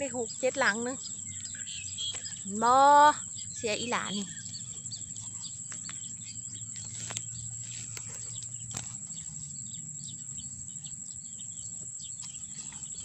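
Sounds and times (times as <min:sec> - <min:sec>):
insects chirring: 0:00.0 - 0:13.0
hands rustling dry grass: 0:06.7 - 0:09.2.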